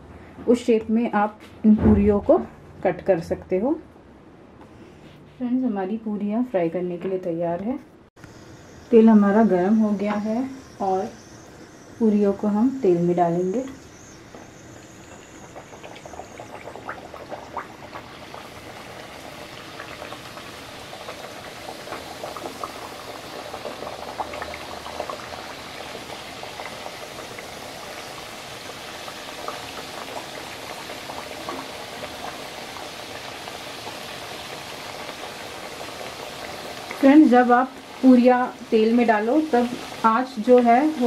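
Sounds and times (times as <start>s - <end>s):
oil sizzling and bubbling: 8.2s - 41.0s.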